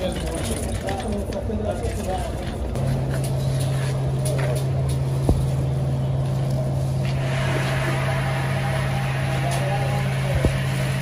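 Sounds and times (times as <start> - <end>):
low motor hum: 2.4 - 11.0.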